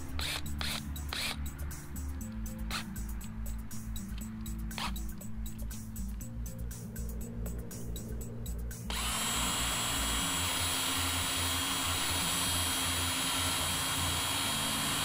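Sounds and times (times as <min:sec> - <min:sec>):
cordless drill whining: 0:00.0 - 0:01.4, 0:08.9 - 0:15.0.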